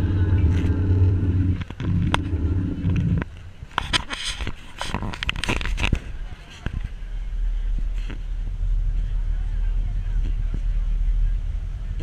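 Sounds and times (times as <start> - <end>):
boat engine droning: 0.0 - 3.7, 6.9 - 12.0
water noise: 0.0 - 3.7
gusts of wind: 0.0 - 10.6.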